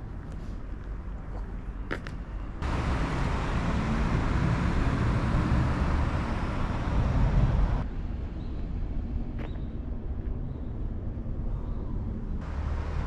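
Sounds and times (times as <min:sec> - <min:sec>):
car passing on road: 0:02.6 - 0:07.8, 0:12.4 - 0:13.0.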